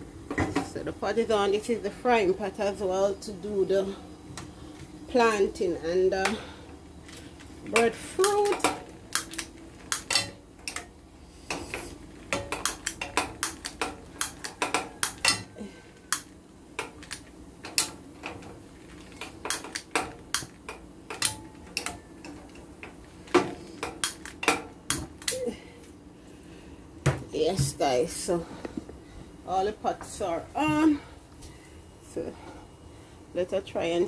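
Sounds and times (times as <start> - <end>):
pots and pans clattering: 9.8 - 10.9, 11.5 - 15.8.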